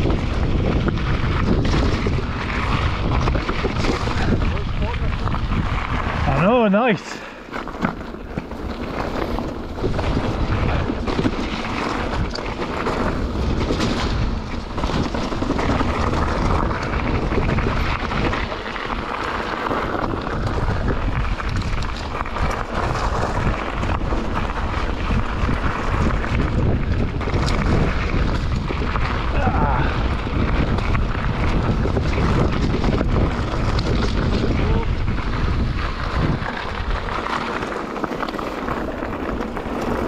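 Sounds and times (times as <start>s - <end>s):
bike clattering: 0.0s - 40.0s
tyres rumbling on loose stones: 0.0s - 40.0s
wind rushing over microphone: 0.0s - 40.0s.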